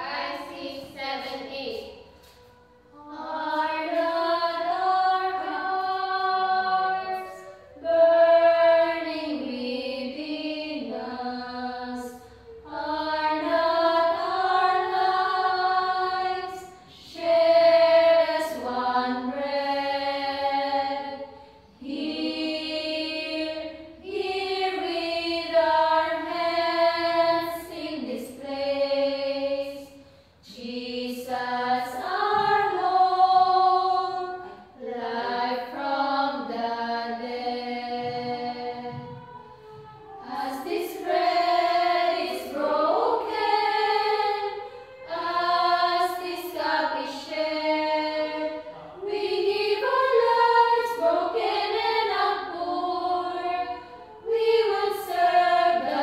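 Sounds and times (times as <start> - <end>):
women's choir singing unaccompanied: 0.0 - 56.0.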